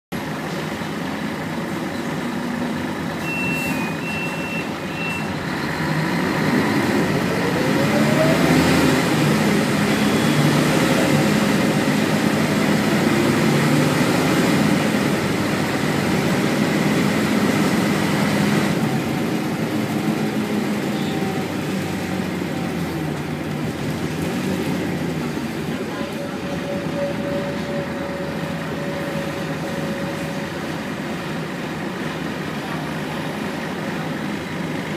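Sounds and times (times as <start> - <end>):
bus diesel engine droning: 0.1 - 34.9
road noise: 0.1 - 34.9
short high beeps: 3.2 - 5.3.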